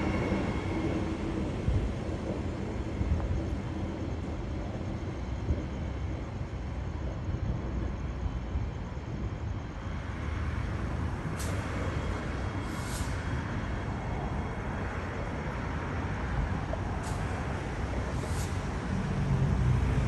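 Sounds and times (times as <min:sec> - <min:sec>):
train rumbling: 0:00.0 - 0:20.0
short high-pitched hisses: 0:12.6 - 0:13.3, 0:18.2 - 0:18.8.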